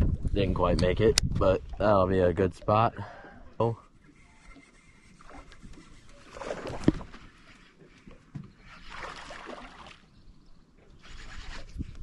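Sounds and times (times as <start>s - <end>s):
water splashing: 4.6s - 7.6s, 8.6s - 10.1s.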